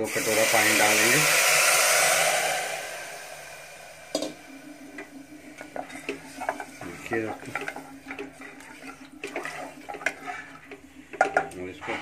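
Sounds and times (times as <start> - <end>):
water pouring: 0.0 - 12.0
wooden spatula stirring rice: 4.9 - 12.0
knocks and scrapes against pot: 5.0 - 12.0.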